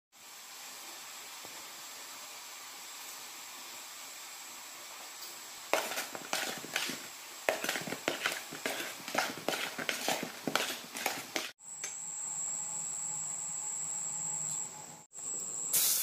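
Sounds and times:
metal spatula scraping a wok: 5.8s - 11.5s.

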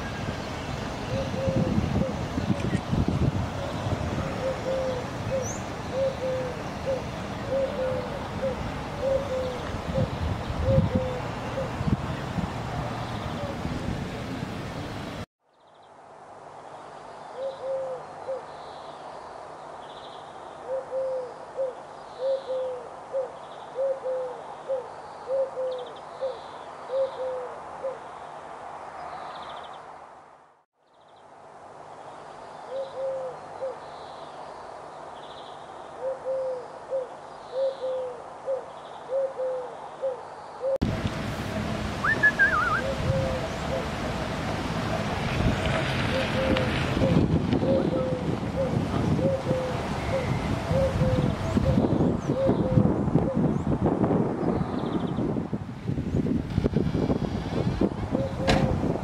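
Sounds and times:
wind noise: 0.0s - 15.2s, 40.8s - 59.0s
bird chirp: 3.6s - 12.0s, 42.0s - 43.8s
low owl hoots: 4.4s - 11.8s, 17.4s - 18.5s, 20.6s - 28.0s, 32.7s - 33.8s, 36.0s - 40.8s, 42.0s - 43.9s, 46.1s - 53.4s.

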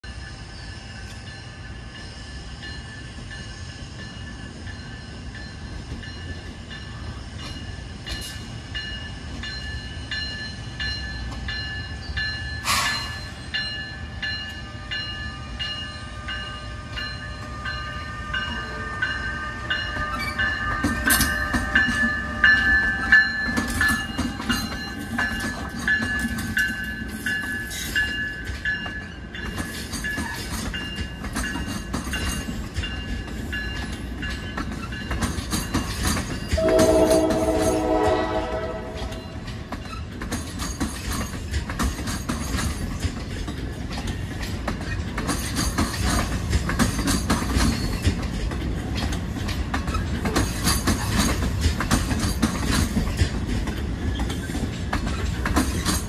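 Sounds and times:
electric locomotive whine: 0.0s - 56.0s
low train rumble: 0.0s - 56.0s
wheels clicking over rail joints: 19.9s - 37.9s, 39.0s - 56.0s.

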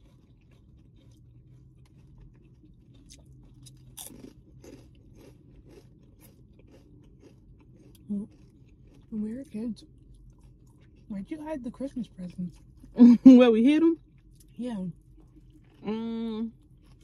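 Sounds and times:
chips being crunched and chewed: 0.0s - 11.4s, 16.5s - 17.0s.

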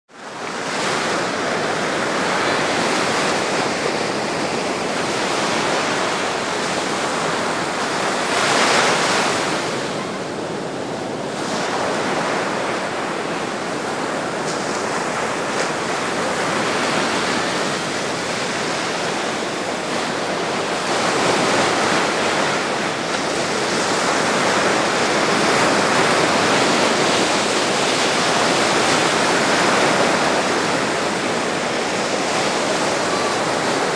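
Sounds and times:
surf breaking over rocks: 14.0s - 33.9s.

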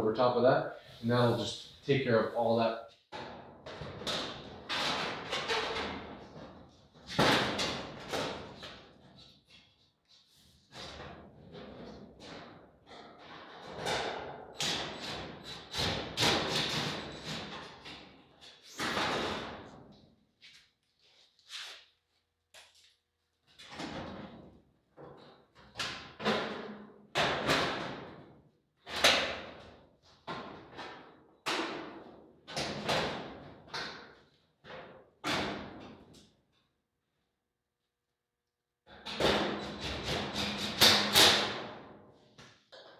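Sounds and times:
knocks on sheet-metal panels: 3.1s - 8.8s, 13.7s - 17.7s, 26.0s - 28.2s, 30.3s - 34.0s, 39.0s - 42.0s.

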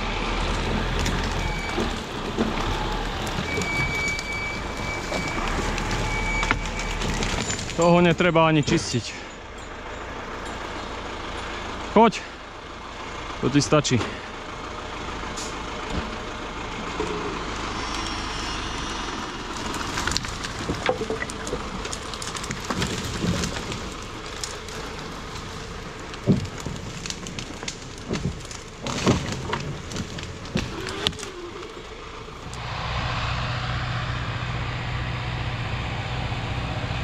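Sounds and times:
tractor engine running: 0.0s - 37.0s
sharp cracks and knocks: 0.4s - 7.9s, 19.6s - 31.8s.

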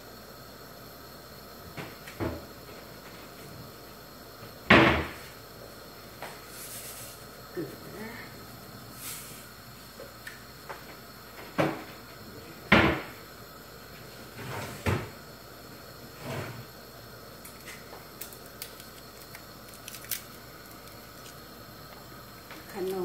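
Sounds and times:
cupboard doors shutting: 4.7s - 5.3s, 12.6s - 13.2s, 14.3s - 15.2s.

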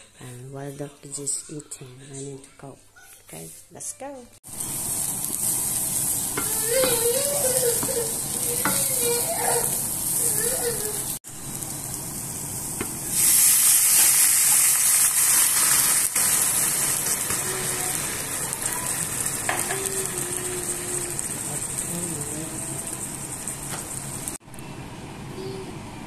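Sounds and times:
food sizzling in a frying pan: 4.4s - 24.4s
broth poured into hot pan: 11.4s - 19.6s.

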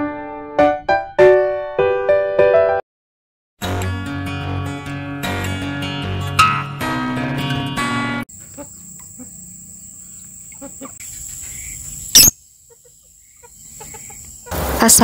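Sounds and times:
guitar music: 3.6s - 8.2s
insect drone: 8.3s - 15.0s
faint bird chirps: 8.6s - 14.4s.

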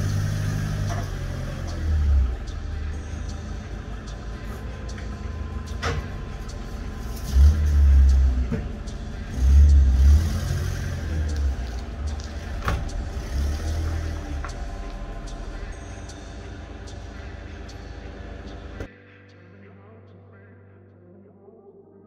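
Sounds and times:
van engine revving: 0.0s - 18.9s.

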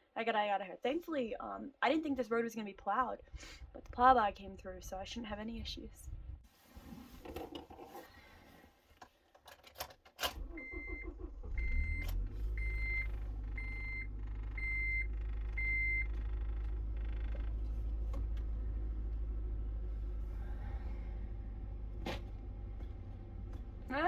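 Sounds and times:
car engine starting and idling: 10.2s - 24.0s
dashboard warning chime beeping: 10.5s - 16.4s.

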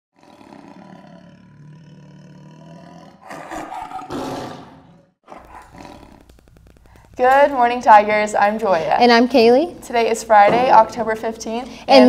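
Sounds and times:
big cat growling and roaring: 0.2s - 6.3s.

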